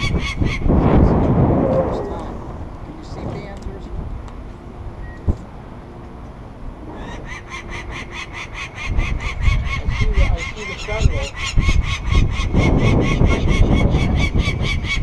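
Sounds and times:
low rumble: 0.4 - 7.8.

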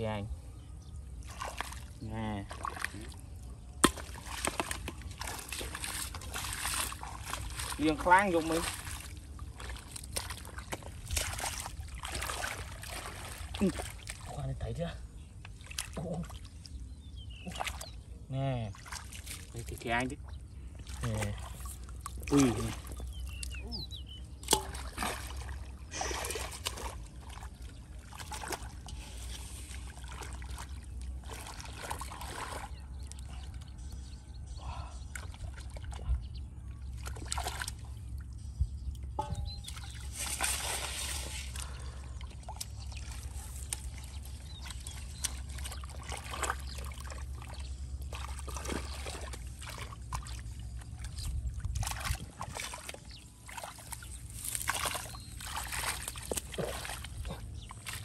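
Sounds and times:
hands splashing in muddy water: 1.2 - 14.4, 18.7 - 19.9, 24.3 - 33.3, 36.9 - 38.1, 39.2 - 58.0.

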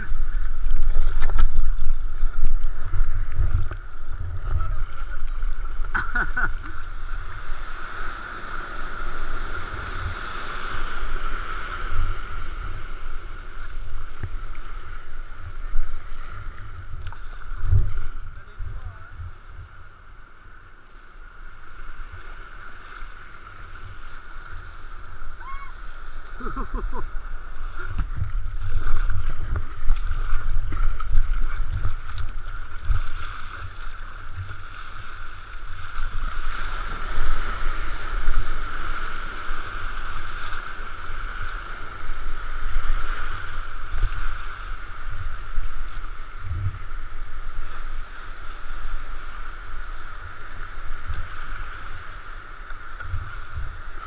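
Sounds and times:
wind buffeting microphone: 0.0 - 7.9, 24.7 - 49.1
shallow surf wash: 0.0 - 54.0
water rushing around kayak hull: 0.0 - 54.0.

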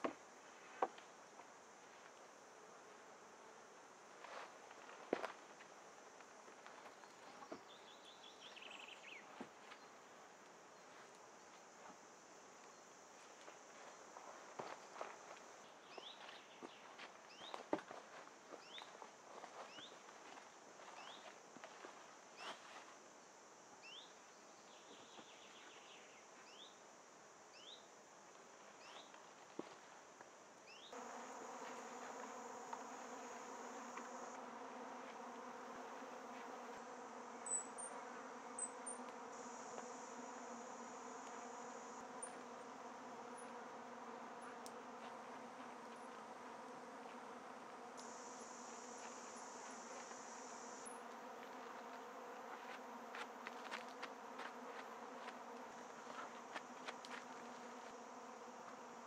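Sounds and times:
insects buzzing: 0.0 - 59.0
high insect trill: 30.6 - 59.0.

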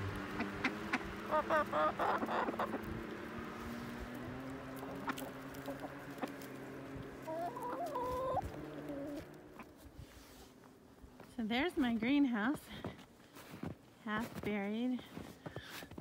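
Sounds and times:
hens clucking: 0.0 - 9.9.

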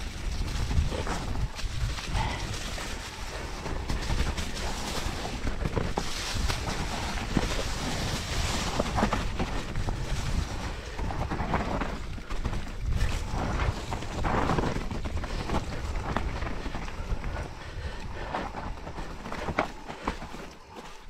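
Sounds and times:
wind rushing over microphone: 0.0 - 19.9
bike tyres crackling through leaves: 0.0 - 21.0.

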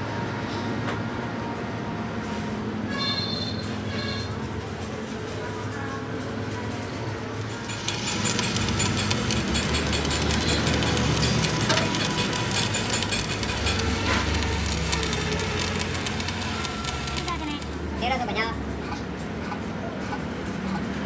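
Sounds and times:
arc welding crackling sizzle: 7.4 - 18.4.

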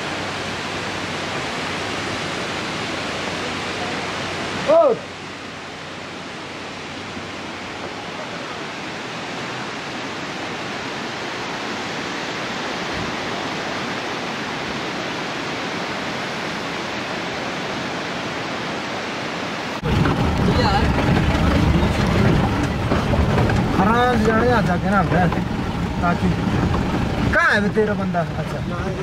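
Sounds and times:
water rushing: 0.0 - 29.0.

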